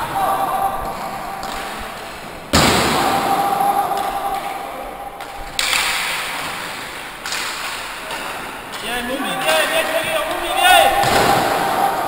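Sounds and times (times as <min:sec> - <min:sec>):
sticks puck and skates clattering: 0:00.8 - 0:03.2, 0:03.8 - 0:12.0
sharp knocks ringing in hall: 0:00.9 - 0:04.6, 0:05.2 - 0:12.0.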